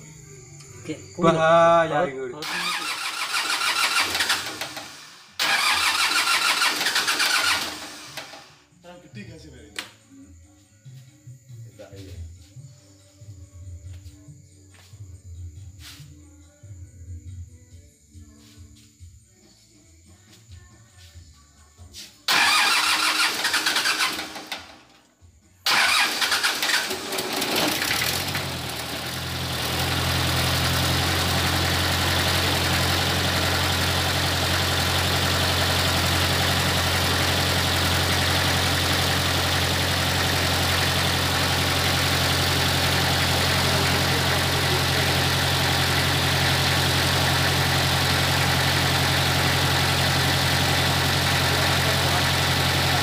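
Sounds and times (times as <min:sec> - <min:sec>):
diesel generator engine starting: 0:01.9 - 0:08.7, 0:22.3 - 0:24.9, 0:25.7 - 0:53.0.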